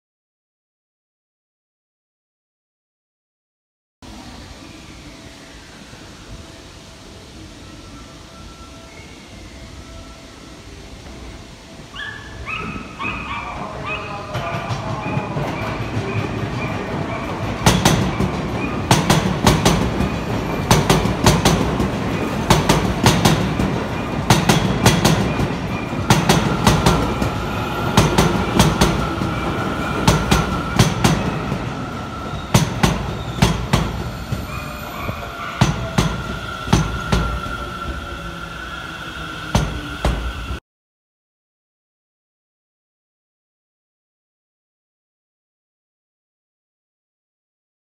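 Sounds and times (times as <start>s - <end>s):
low train rumble: 4.0s - 40.6s
high-pitched squeal: 12.1s - 40.6s
train wheels clicking over rail joints: 14.2s - 38.1s, 39.4s - 40.6s.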